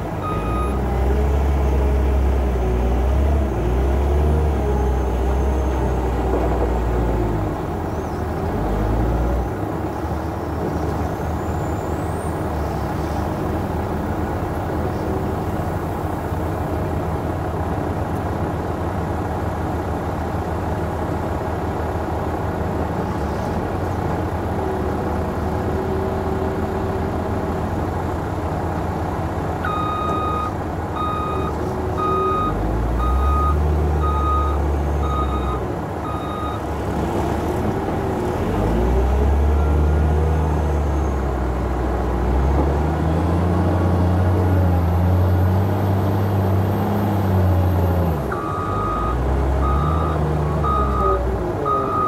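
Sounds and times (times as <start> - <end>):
diesel engine working hard: 0.0 - 52.0
reversing alarm beeping: 29.7 - 36.6, 48.4 - 52.0.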